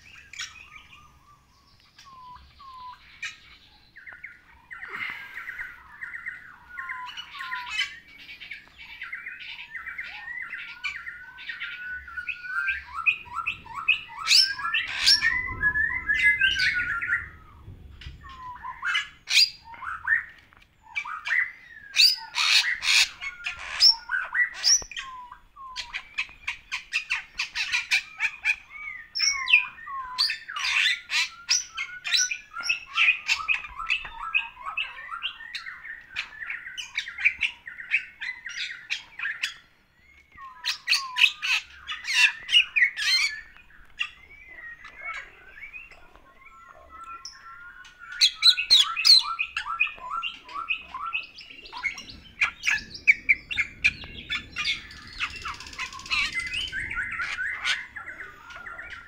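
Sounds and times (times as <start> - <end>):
starling singing: 40.5 - 59.0.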